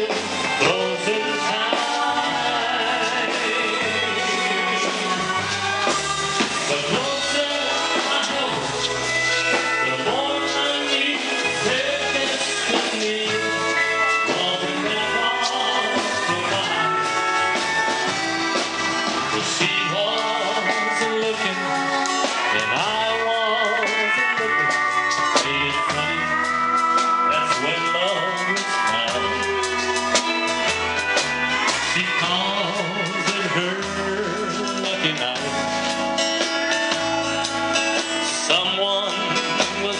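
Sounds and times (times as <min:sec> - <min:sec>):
country dance band playing: 0:00.0 - 0:39.9
drum beat: 0:00.0 - 0:39.9
electric guitar: 0:00.0 - 0:39.9
upright bass: 0:00.0 - 0:39.9.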